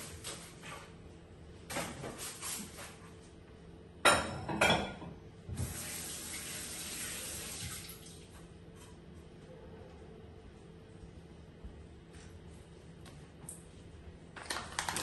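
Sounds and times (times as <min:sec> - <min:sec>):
tap water running into sink: 0:05.5 - 0:08.3.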